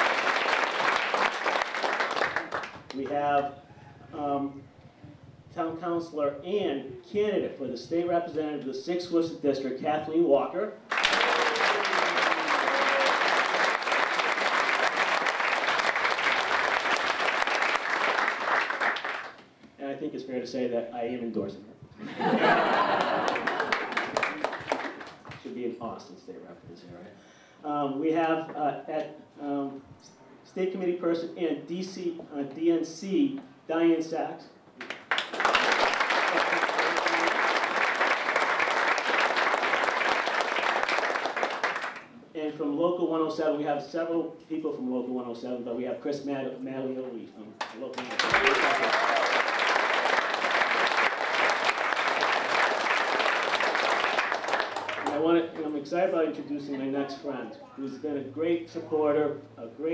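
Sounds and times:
crowd applauding: 0.0 - 3.1, 10.9 - 19.4, 22.2 - 25.4, 34.8 - 42.0, 47.6 - 55.2.

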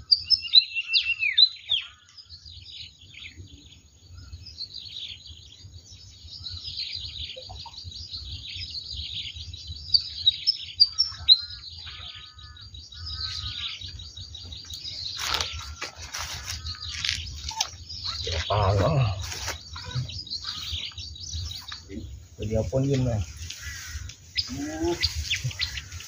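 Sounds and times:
small birds chirping: 0.0 - 26.0.

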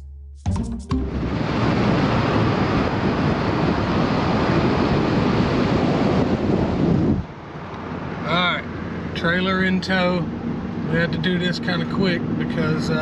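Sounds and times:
road noise: 0.9 - 13.0
wind roaring over microphone: 1.0 - 13.0.

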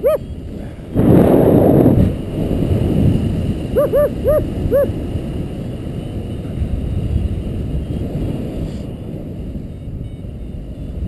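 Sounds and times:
wind rushing over microphone: 0.0 - 11.0
short yelping calls: 3.8 - 4.9.

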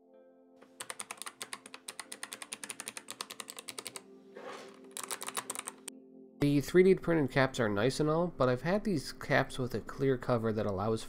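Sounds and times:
mechanical keyboard keys clicking: 0.6 - 4.0, 4.9 - 5.9.

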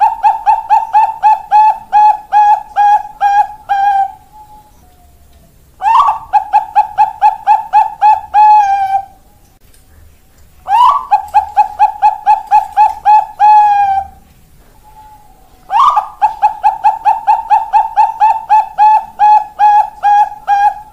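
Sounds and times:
dove cooing: 0.0 - 9.4, 10.6 - 20.9.

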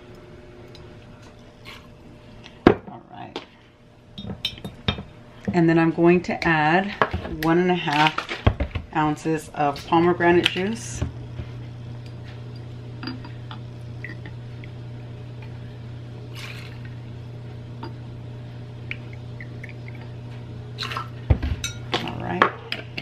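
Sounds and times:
low hum: 7.4 - 23.0
juice pouring: 16.3 - 17.0.

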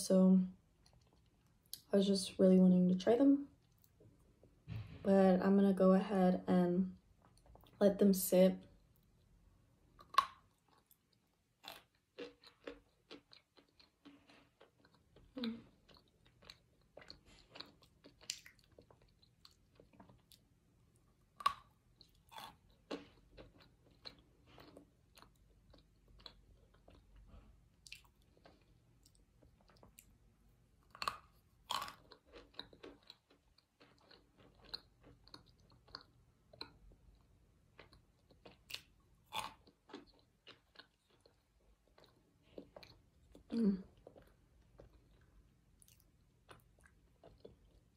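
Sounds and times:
chewing crunches: 10.0 - 20.5, 21.3 - 30.1, 30.8 - 47.9.

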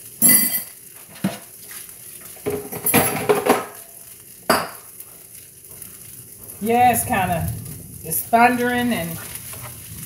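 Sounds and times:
utensils clattering on a skillet: 0.2 - 4.9.

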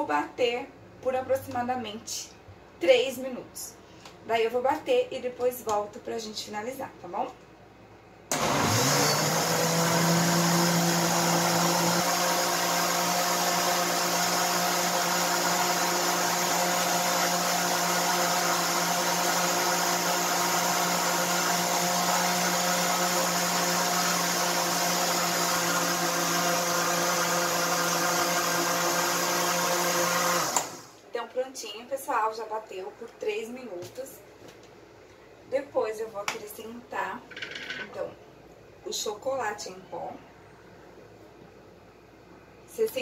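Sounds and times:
blender motor running: 8.3 - 31.0.

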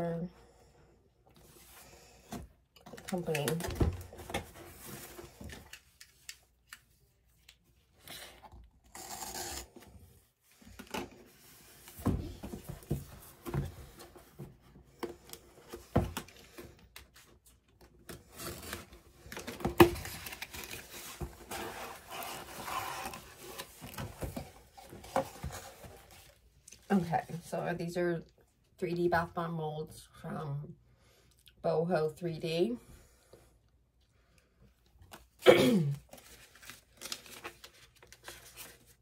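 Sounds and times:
packaging rustling and crinkling: 36.1 - 39.0.

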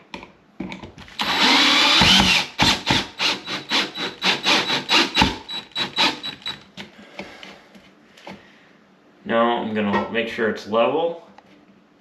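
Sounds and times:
cordless drill driving screw: 1.2 - 6.6.

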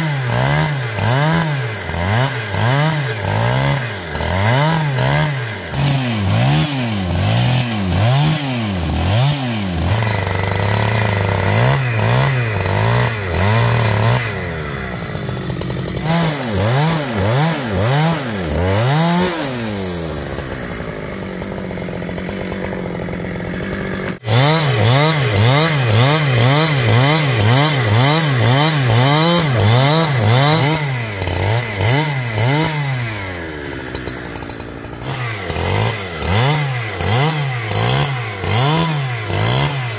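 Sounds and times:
chainsaw revving cutting wood: 0.0 - 39.9.

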